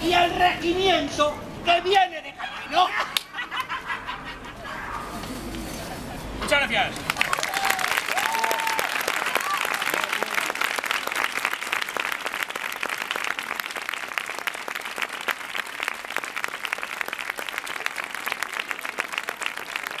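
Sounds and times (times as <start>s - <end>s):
crowd applauding: 7.0s - 20.0s.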